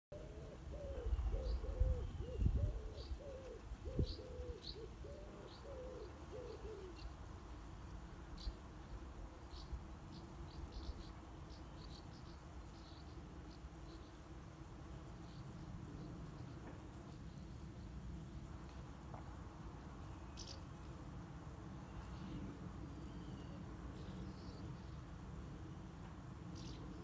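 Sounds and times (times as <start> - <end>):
pigeon cooing: 0.1 - 7.1
small bird chirping: 8.4 - 14.2, 20.0 - 20.8.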